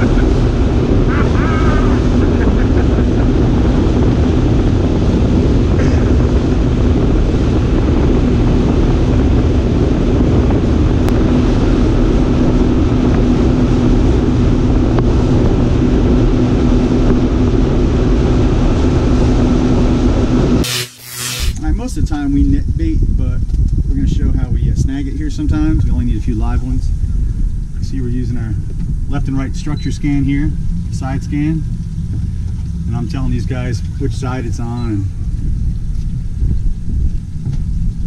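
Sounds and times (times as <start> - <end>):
water rushing along hull: 0.0 - 20.6, 26.9 - 36.3
wind buffeting microphone: 0.0 - 20.6, 21.6 - 38.0
outboard motor running: 0.0 - 20.8, 28.6 - 38.0.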